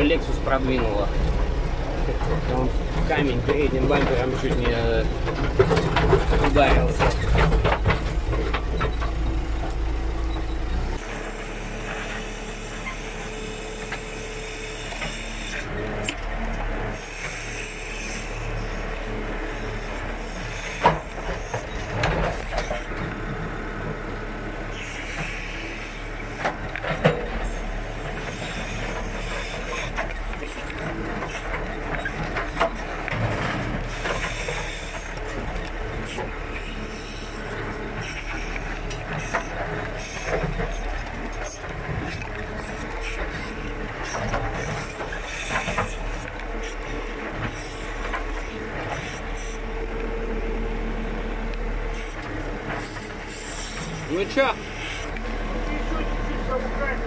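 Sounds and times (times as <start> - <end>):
knocks and rattles: 0.0 - 10.6, 20.5 - 24.0, 26.4 - 36.7
diesel engine running: 0.0 - 57.0
faint engine whine: 0.0 - 57.0.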